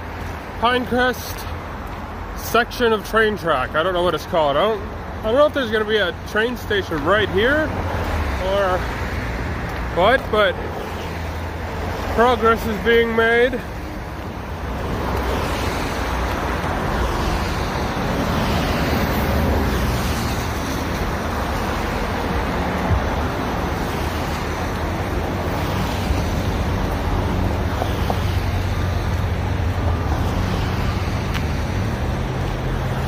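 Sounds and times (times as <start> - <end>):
road traffic roar: 0.0 - 33.0.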